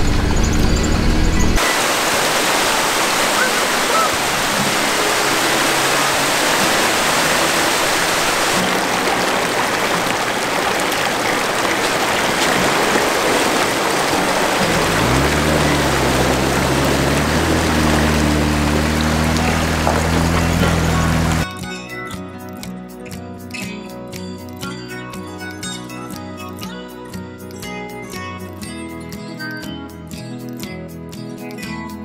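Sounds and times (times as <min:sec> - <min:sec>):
fast-flowing stream water: 0:01.6 - 0:21.5
low background music: 0:04.5 - 0:32.0.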